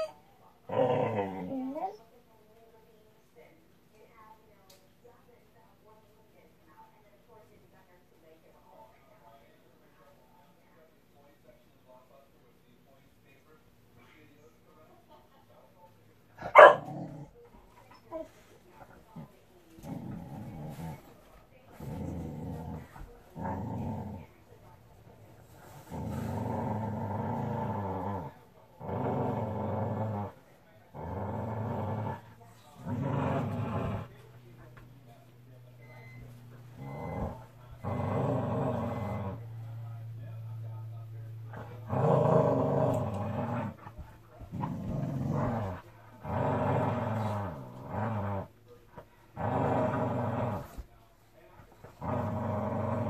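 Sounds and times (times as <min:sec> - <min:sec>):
dog growling: 0:00.0 - 0:02.0, 0:16.4 - 0:34.8, 0:36.0 - 0:50.9, 0:51.6 - 0:53.0.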